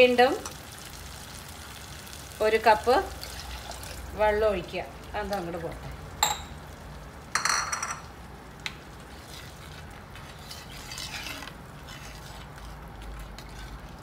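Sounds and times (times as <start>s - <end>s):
metal spoon stirring in clay pot: 9.1s - 14.0s.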